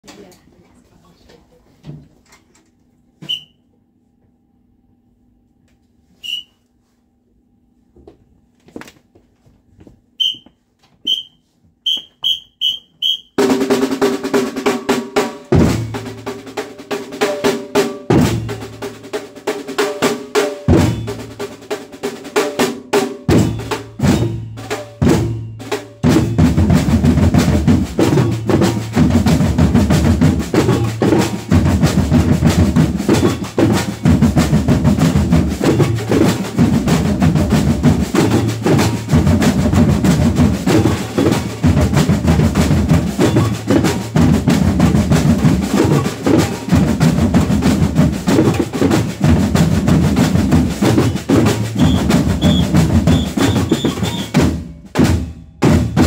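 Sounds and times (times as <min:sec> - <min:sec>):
short whistle blasts: 0:03.2 - 0:03.7, 0:06.2 - 0:06.6, 0:10.2 - 0:13.4, 0:51.0 - 0:54.4
samba drums playing: 0:12.0 - 0:56.0.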